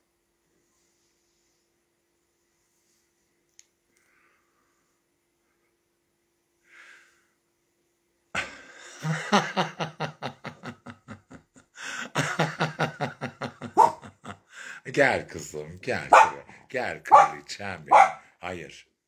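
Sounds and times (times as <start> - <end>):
woman laughing heartily: 8.4 - 14.5.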